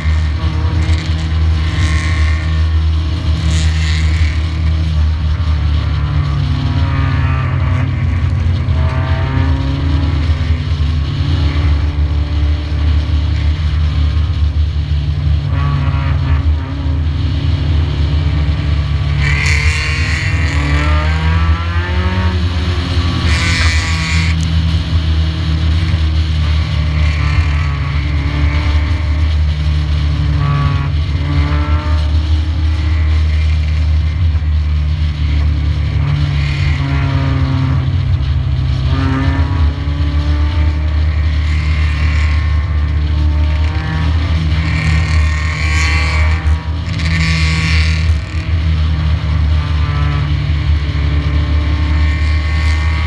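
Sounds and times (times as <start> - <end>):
other race cars: 0.0 - 53.0
race car engine: 0.0 - 53.0.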